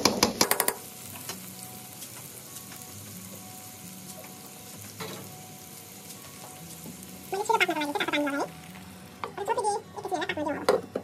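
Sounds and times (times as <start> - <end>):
food sizzling in hot oil: 0.1 - 11.0.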